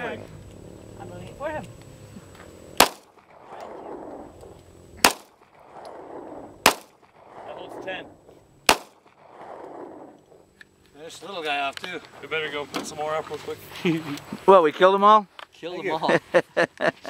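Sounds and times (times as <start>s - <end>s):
pistol shots with echo: 2.8s - 4.3s, 5.0s - 7.5s, 8.6s - 10.1s.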